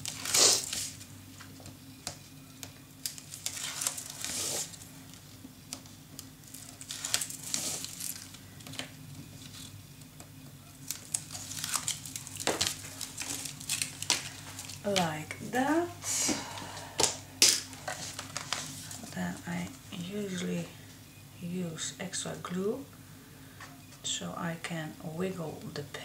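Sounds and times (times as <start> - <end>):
crinkling and rustling paper: 0.0 - 1.7, 3.0 - 15.2, 17.5 - 19.4.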